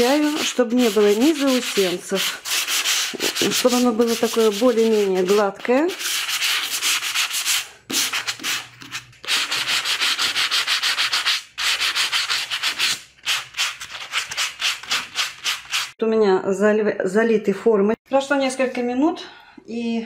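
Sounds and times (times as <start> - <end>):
sanding sponge scratching: 0.0 - 16.0.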